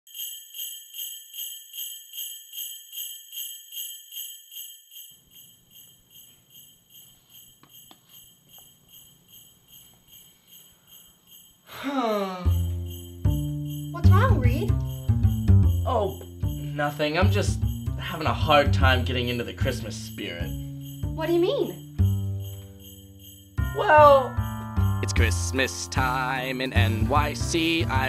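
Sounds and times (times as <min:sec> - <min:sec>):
sleigh bells shaken: 0:00.1 - 0:28.0
music with heavy bass: 0:23.6 - 0:28.0.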